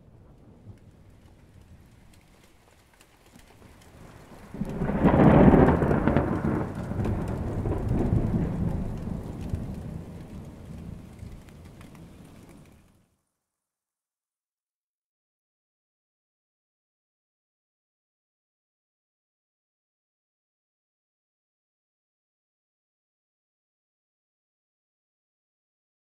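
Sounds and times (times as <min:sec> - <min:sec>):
thunder rumbling: 0:00.0 - 0:02.8, 0:03.4 - 0:12.8
light rain hissing: 0:00.0 - 0:13.0.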